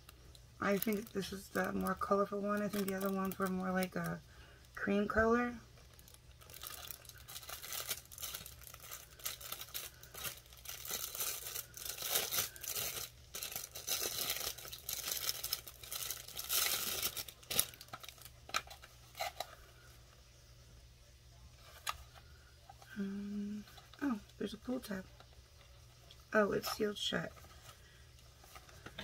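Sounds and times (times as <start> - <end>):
plastic wrap tearing and crinkling: 0.0 - 19.7.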